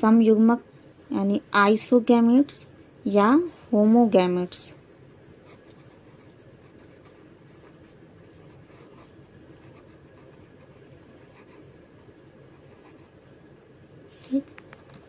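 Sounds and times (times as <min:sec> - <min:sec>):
low background hum: 0:00.0 - 0:15.0
pen scratching on paper: 0:05.4 - 0:13.4.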